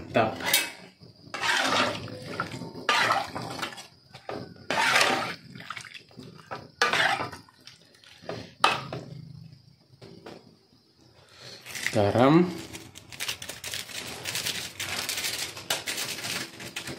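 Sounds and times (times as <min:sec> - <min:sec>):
metal spatula scraping a wok: 0:00.2 - 0:03.9, 0:04.6 - 0:05.4, 0:06.8 - 0:07.3
wet sloshing: 0:04.7 - 0:08.3.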